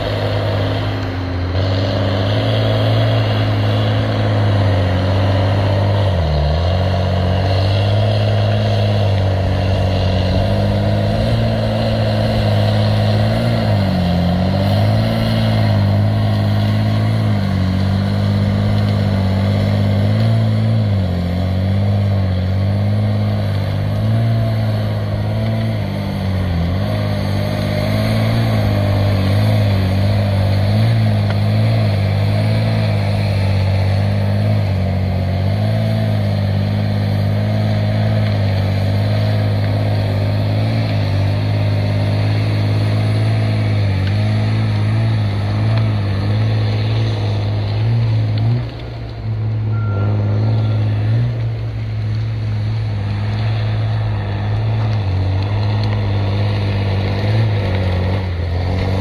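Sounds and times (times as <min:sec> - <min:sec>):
diesel engine under load: 0:00.0 - 0:59.0
faint wavering whine: 0:49.7 - 0:51.1.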